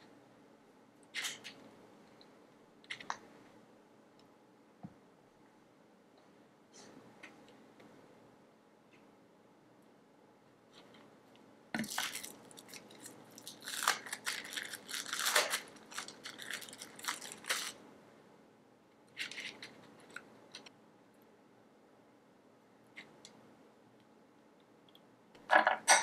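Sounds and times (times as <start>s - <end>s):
plastic film crinkling: 11.8s - 17.8s.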